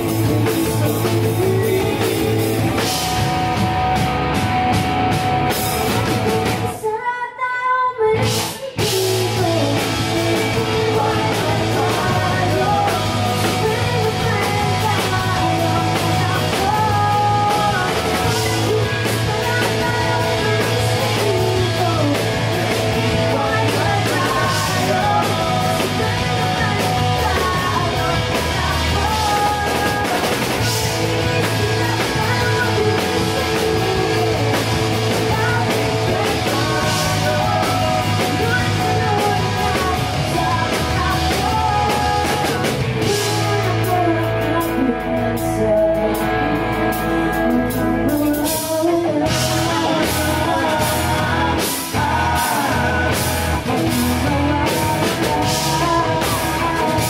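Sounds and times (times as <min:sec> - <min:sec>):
woman singing lead vocals: 0:00.0 - 0:03.9, 0:05.5 - 0:57.0
live rock band: 0:00.0 - 0:57.0.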